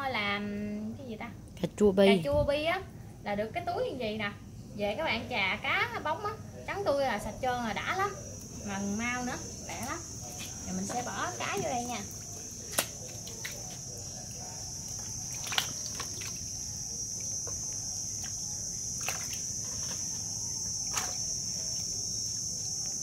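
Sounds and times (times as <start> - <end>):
high-pitched insect drone: 7.3 - 23.0.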